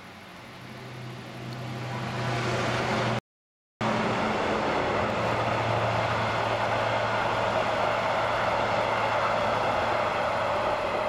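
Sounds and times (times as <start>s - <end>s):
train passing close by: 3.8s - 11.0s.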